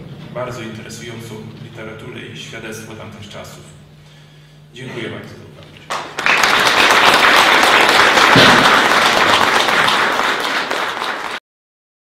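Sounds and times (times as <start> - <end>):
audience applauding: 5.9 - 11.4.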